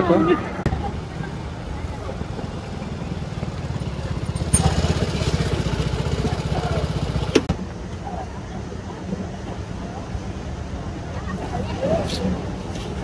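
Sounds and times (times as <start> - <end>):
scooter engine running: 0.7 - 7.5.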